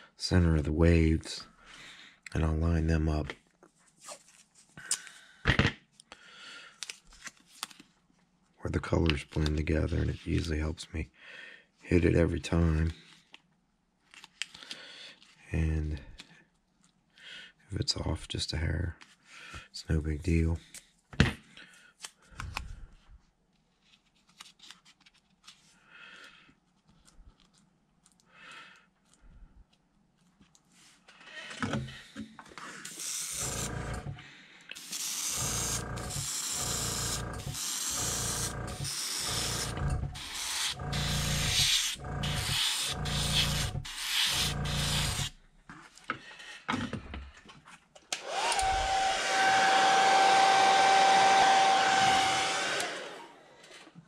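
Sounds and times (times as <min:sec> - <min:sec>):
airbrush hissing bursts: 0:32.9 - 0:34.2, 0:34.8 - 0:45.4
hair dryer blowing: 0:33.0 - 0:34.2, 0:34.8 - 0:45.3, 0:48.2 - 0:53.5.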